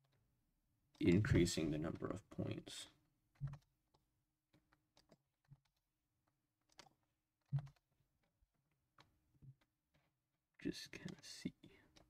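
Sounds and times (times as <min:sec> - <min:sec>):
mouse and keyboard clicks: 0:06.7 - 0:07.8.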